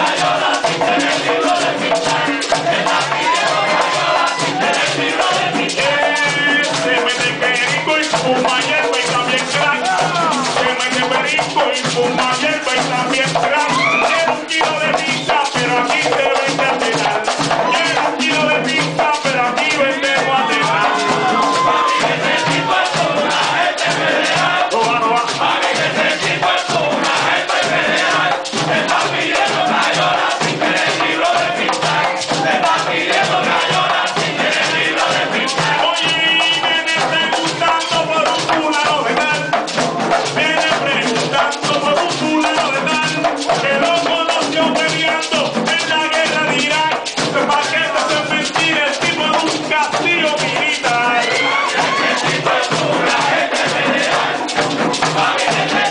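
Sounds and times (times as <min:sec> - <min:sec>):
person singing into microphone: 0:00.0 - 0:23.5
frame drums beating: 0:00.0 - 0:55.9.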